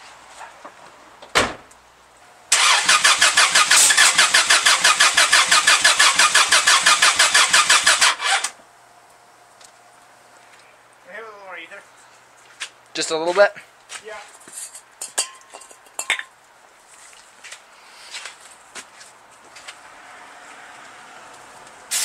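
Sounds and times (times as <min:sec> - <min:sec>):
starter cranking engine: 0:02.5 - 0:08.6.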